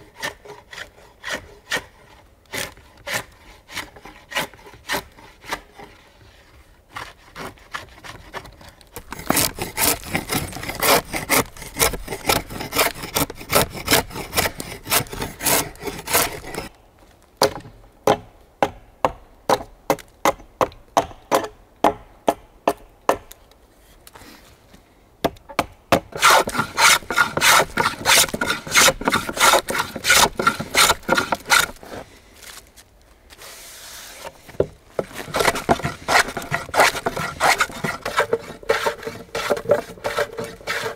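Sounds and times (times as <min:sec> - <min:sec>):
drawknife scraping wood: 0:06.9 - 0:16.7, 0:26.2 - 0:32.0, 0:33.3 - 0:40.9.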